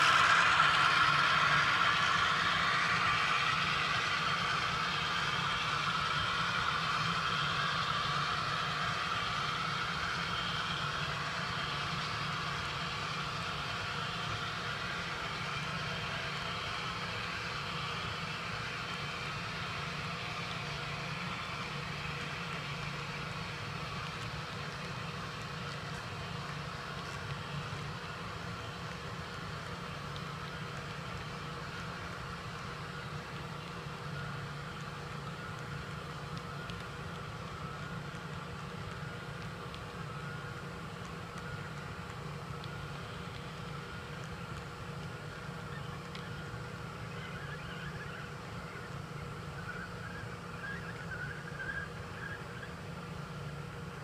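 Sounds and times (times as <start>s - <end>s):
simulated diesel engine: 0.0s - 26.1s
model train cars rolling on track: 0.0s - 49.0s.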